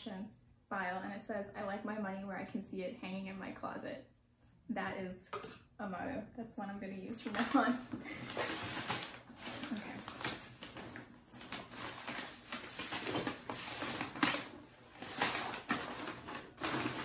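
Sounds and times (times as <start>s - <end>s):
tissue paper rustling: 7.3s - 17.0s.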